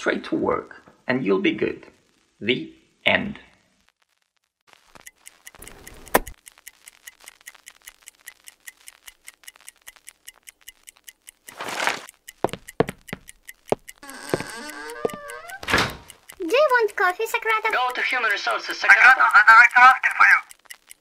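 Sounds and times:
alarm clock ticking: 0:04.7 - 0:21.0.

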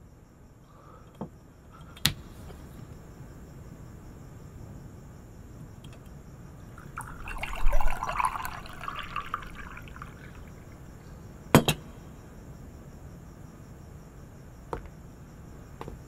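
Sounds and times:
tea pouring into a cup: 0:06.7 - 0:11.0
china clinking: 0:06.8 - 0:10.8.

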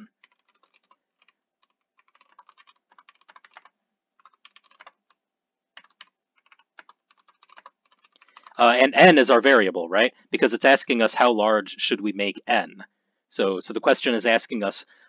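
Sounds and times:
faint keyboard typing: 0:00.0 - 0:09.3.

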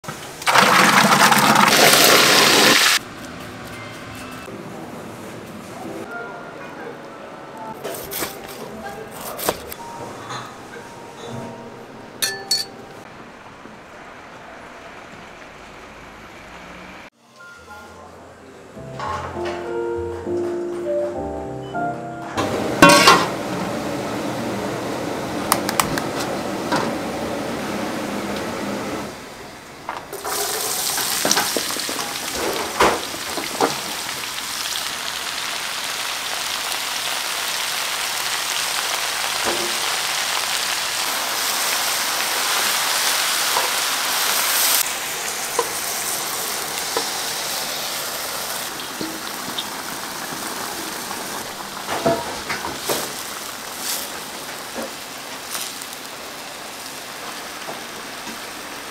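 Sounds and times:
meat deep-frying in oil: 0:00.2 - 0:03.0, 0:30.1 - 0:58.9
clinks: 0:12.2 - 0:12.8.

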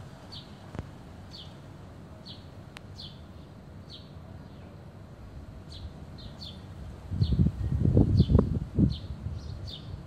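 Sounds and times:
faint outdoor hiss: 0:00.0 - 0:10.0.

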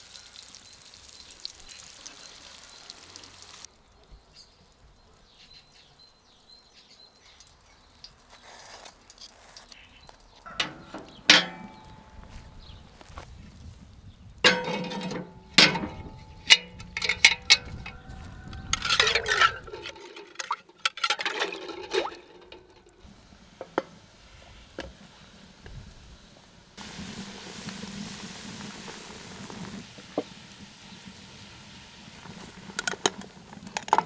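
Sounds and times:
glass jars clinking in water: 0:10.5 - 0:12.7, 0:14.4 - 0:23.0
cast iron clanking on stove: 0:10.5 - 0:12.8, 0:14.4 - 0:23.0
water sloshing in cauldron: 0:18.8 - 0:23.0
faint steady hiss: 0:21.1 - 0:34.0.

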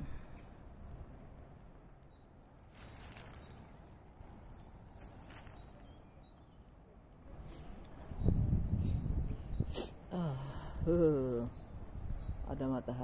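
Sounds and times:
faint bird chirps: 0:01.6 - 0:13.0
footsteps rustling through undergrowth: 0:02.6 - 0:05.9
wind rumble on microphone: 0:08.0 - 0:09.7, 0:10.6 - 0:12.6.

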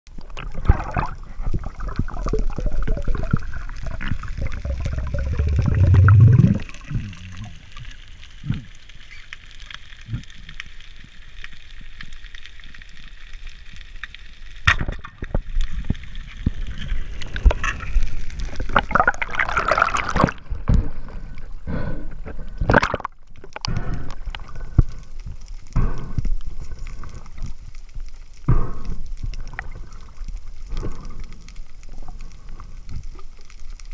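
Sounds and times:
water gurgling underwater: 0:00.1 - 0:08.8, 0:14.8 - 0:31.2.

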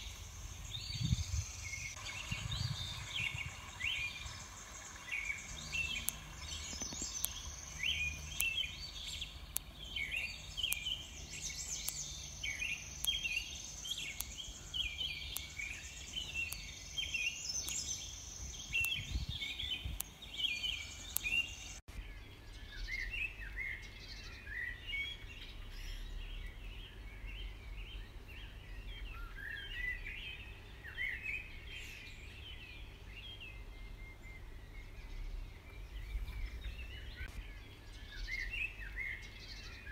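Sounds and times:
birds chirping and trilling: 0:00.0 - 0:39.9
low rumble: 0:00.3 - 0:06.9
faint regular ticks: 0:04.4 - 0:19.0, 0:19.8 - 0:21.8.

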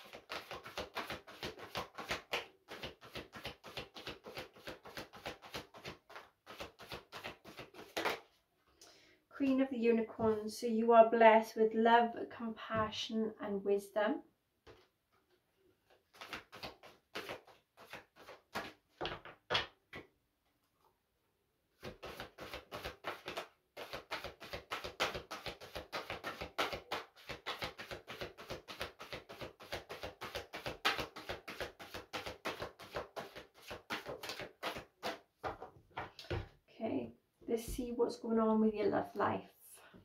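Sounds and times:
cards being shuffled: 0:00.0 - 0:08.3, 0:15.9 - 0:19.8, 0:21.8 - 0:36.4.

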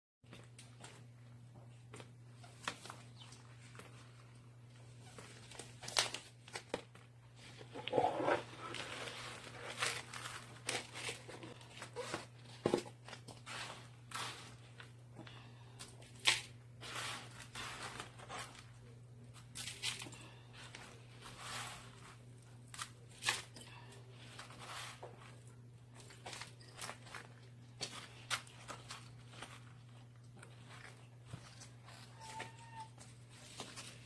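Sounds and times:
hands scraping through potting soil: 0:07.4 - 0:15.0, 0:15.8 - 0:18.9, 0:19.5 - 0:23.5, 0:24.1 - 0:25.5.

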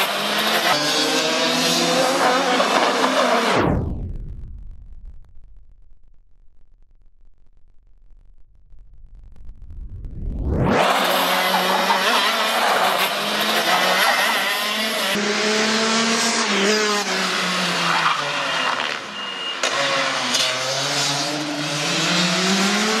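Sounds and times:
kart engines revving: 0:00.0 - 0:03.6, 0:10.6 - 0:23.0.

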